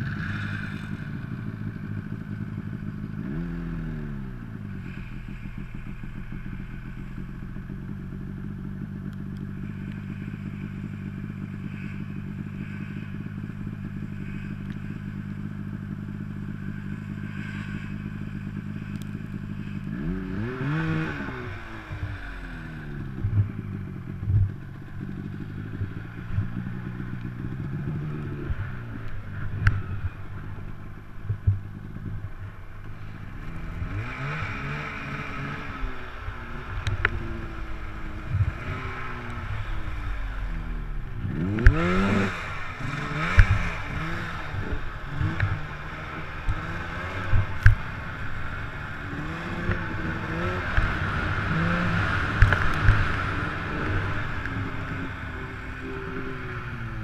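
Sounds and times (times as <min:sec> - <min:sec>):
snowmobile engine revving: 0:00.0 - 0:14.8, 0:15.4 - 0:57.0.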